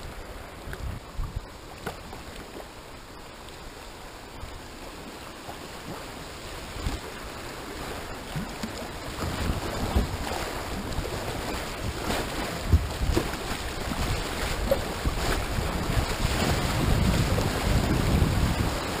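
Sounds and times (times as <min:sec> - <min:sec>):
wind buffeting microphone: 0:00.0 - 0:01.6, 0:09.0 - 0:19.0
creek water rushing: 0:00.0 - 0:19.0.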